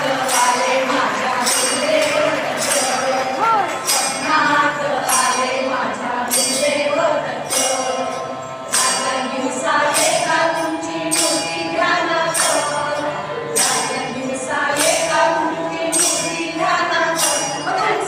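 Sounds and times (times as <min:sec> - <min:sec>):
hands clapping in time: 0:00.0 - 0:04.4
harmonium: 0:00.0 - 0:18.0
women singing devotional song: 0:00.0 - 0:18.0.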